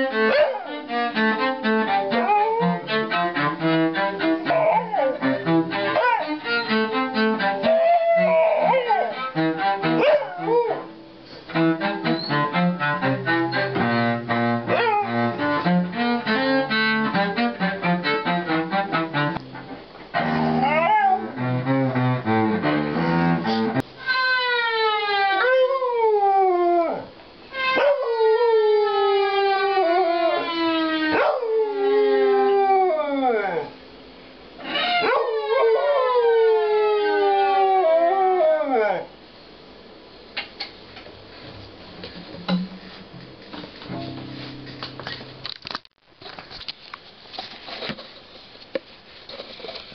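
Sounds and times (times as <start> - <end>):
small dog howling: 0.3 - 0.8, 2.1 - 2.8, 4.4 - 5.3, 5.9 - 6.4, 7.6 - 9.3, 10.0 - 11.0, 14.7 - 15.2, 20.6 - 21.4, 24.6 - 33.8, 34.6 - 39.1
cello playing quick notes: 11.5 - 20.7, 21.4 - 23.9, 42.5 - 45.5.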